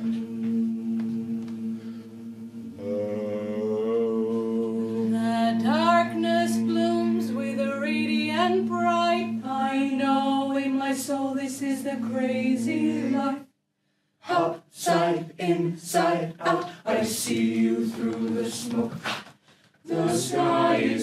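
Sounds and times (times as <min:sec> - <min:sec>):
steady low drone: 0:00.0 - 0:13.3
voices singing wordlessly: 0:00.0 - 0:13.5, 0:14.2 - 0:19.1, 0:19.9 - 0:21.0.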